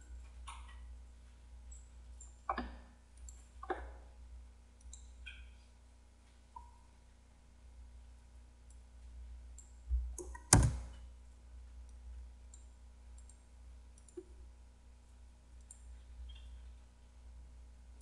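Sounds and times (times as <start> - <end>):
low steady hum: 0.0 - 18.0
computer mouse and keyboard clicks: 9.6 - 11.0.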